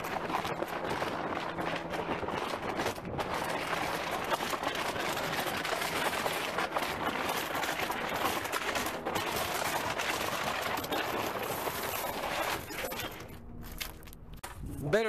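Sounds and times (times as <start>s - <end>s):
footsteps on asphalt: 13.4s - 14.6s.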